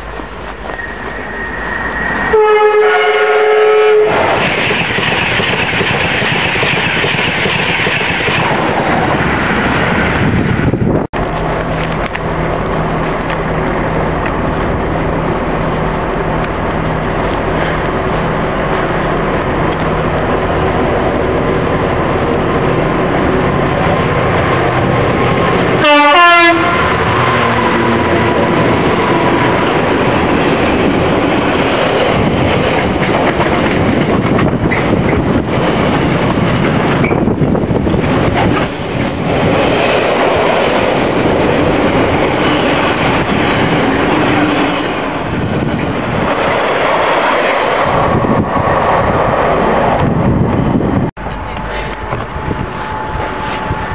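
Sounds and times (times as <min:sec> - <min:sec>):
train rumble and clatter: 0:00.0 - 0:53.9
train horn blast: 0:00.7 - 0:04.4, 0:25.8 - 0:29.4.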